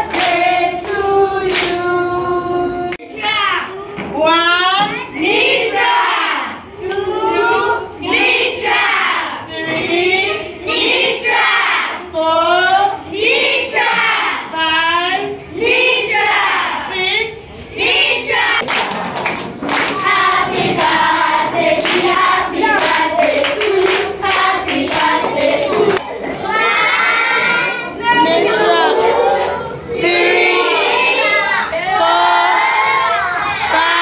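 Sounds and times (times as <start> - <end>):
rhythmic hand clapping: 0.0 - 1.9, 18.6 - 26.1
children and adults singing: 0.0 - 34.0.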